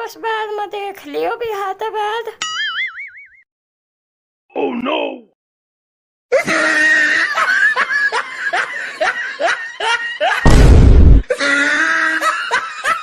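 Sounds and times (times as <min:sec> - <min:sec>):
loud laughter: 0:06.3 - 0:10.5, 0:11.3 - 0:13.0
deep burst of noise: 0:10.5 - 0:11.2.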